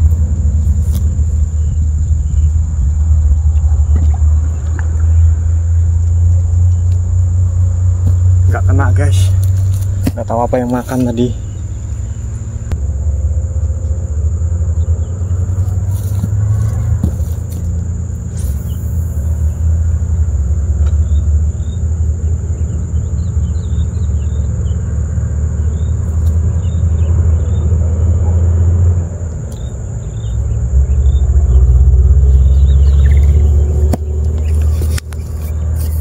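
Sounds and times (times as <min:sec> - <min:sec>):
wind buffeting microphone: 0:00.0 - 0:12.8.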